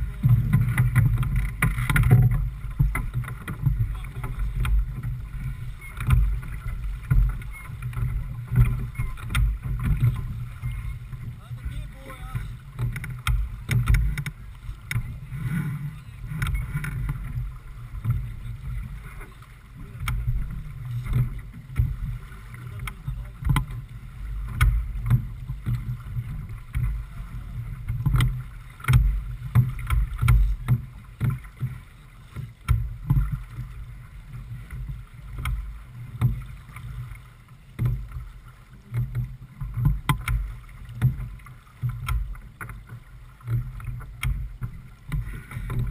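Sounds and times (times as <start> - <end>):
water washing along hull: 0.0 - 45.9
wind rumble on microphone: 0.0 - 45.9
sharp knocks and clicks: 0.4 - 5.1, 5.9 - 6.3, 7.0 - 10.2, 12.8 - 15.1, 22.8 - 23.8, 24.5 - 25.8, 39.8 - 41.2, 41.8 - 42.9, 43.5 - 45.9.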